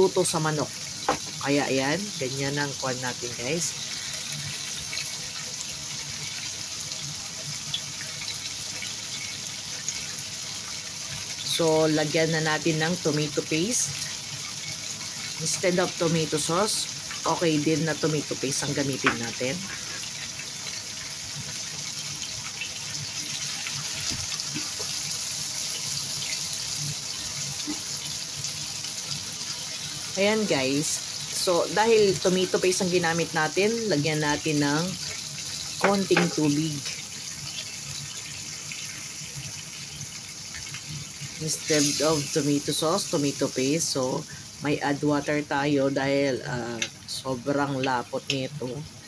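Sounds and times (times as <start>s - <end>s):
food sizzling in a pan: 0.0s - 49.0s
spoon knocking and scraping pan: 35.8s - 36.5s.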